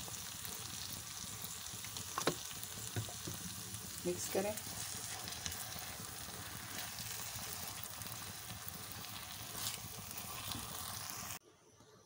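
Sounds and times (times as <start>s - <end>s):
sauce sizzling in a wok: 0.0s - 11.4s
spatula scraping a pan: 4.6s - 11.4s.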